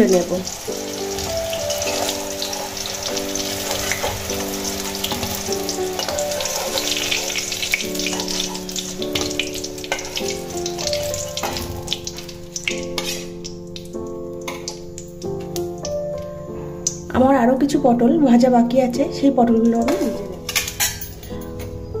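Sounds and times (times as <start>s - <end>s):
hot oil sizzling: 0.0s - 17.0s
soft background music: 0.0s - 22.0s
metal spatula scraping pan: 1.8s - 5.4s, 6.0s - 10.2s, 12.8s - 13.4s.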